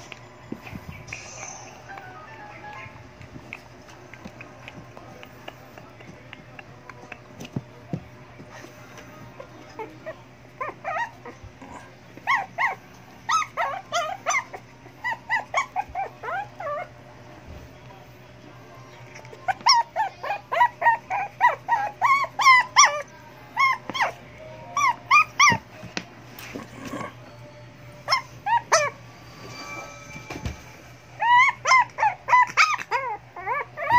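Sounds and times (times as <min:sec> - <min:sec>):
dog whining and yelping: 0:09.7 - 0:17.0, 0:19.2 - 0:24.2, 0:24.8 - 0:25.7, 0:28.0 - 0:29.0, 0:31.1 - 0:33.9.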